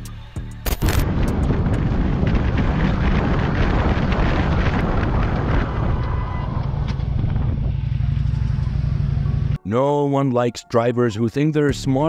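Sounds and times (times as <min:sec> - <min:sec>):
wind rumble on microphone: 0:00.7 - 0:09.6
motorcycle engine: 0:01.5 - 0:09.6.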